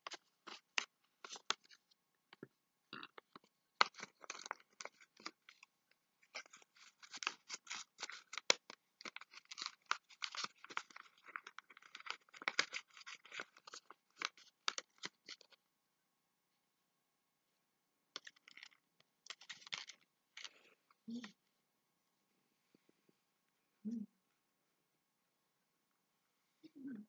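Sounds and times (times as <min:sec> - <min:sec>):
paper rustling and crinkling: 0:00.0 - 0:01.8, 0:03.3 - 0:15.6, 0:18.2 - 0:20.6.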